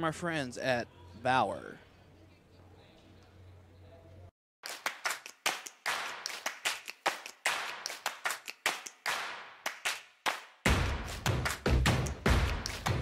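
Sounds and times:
sharp slaps or claps: 4.6 - 13.0
deep thumping beat: 10.7 - 13.0.

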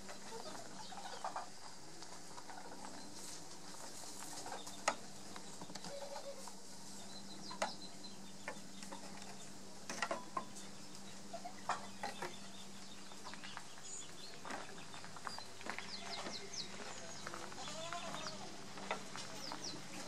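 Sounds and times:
faint steady hum: 0.0 - 20.0
small knocks and clicks: 8.4 - 10.7.

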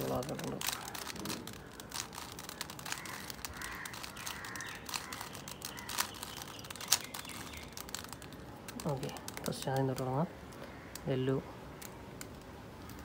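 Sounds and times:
puzzle cube layers clicking: 0.0 - 10.1.

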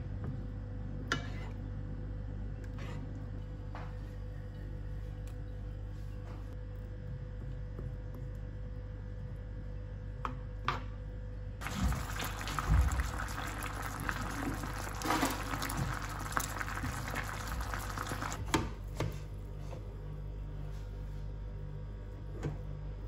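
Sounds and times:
sauce sizzling in a frying pan: 11.6 - 18.4.

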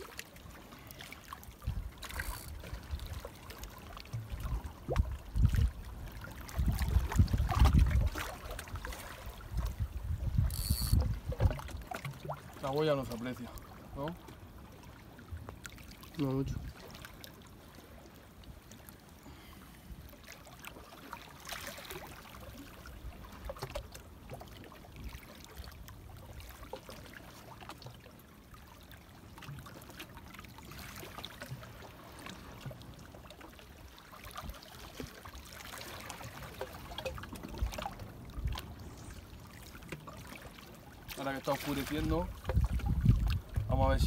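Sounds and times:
small waves splashing on rocks: 39.8 - 44.0.

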